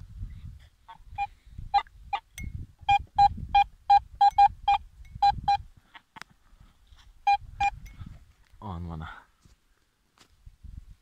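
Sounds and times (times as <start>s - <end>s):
metal detector beeps: 1.1s - 5.7s, 7.3s - 8.0s.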